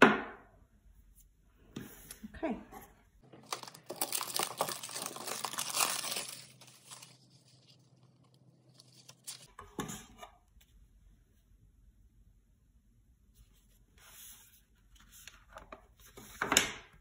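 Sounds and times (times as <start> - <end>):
packaging crinkling and tearing: 3.4 - 9.5
cardboard box rustle: 3.5 - 7.6.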